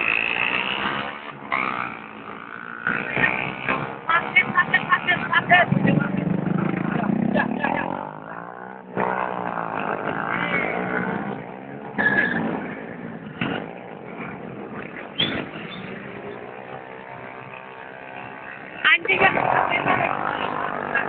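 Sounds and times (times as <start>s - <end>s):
motorcycles revving and passing: 0.0s - 21.0s.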